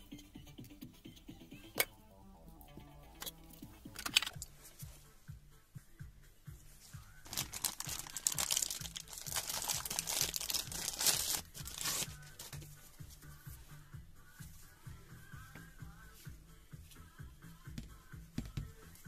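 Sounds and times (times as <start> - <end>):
background music with beat: 0.0 - 19.0
plastic bag crinkling: 7.2 - 12.2.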